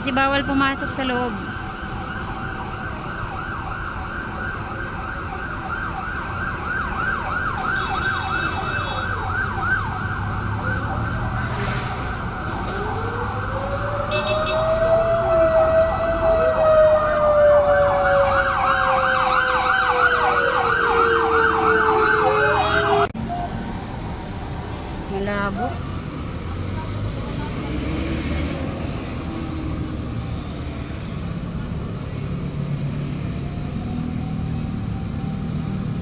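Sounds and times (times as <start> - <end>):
siren wail rising and falling: 0.0 - 23.2, 32.8 - 36.0.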